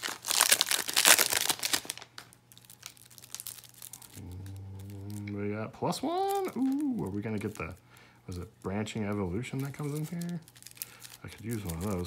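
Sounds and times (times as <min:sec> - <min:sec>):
foil wrapper crinkling: 0:00.0 - 0:12.0
cards being handled: 0:06.0 - 0:12.0.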